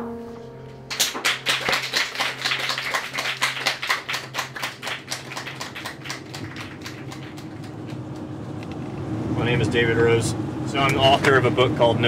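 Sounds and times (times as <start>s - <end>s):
small audience applauding: 0.9s - 8.4s.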